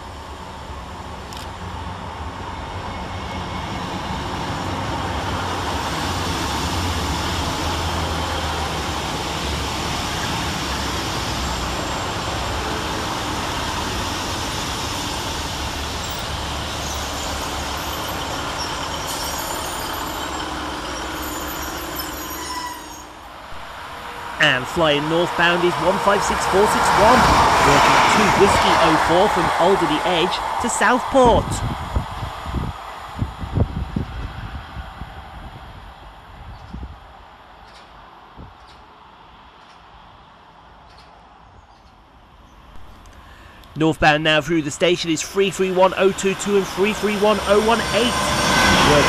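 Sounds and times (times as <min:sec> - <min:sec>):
train wheels on rail: 0:00.0 - 0:43.8, 0:45.2 - 0:49.0
diesel train engines: 0:00.0 - 0:49.0.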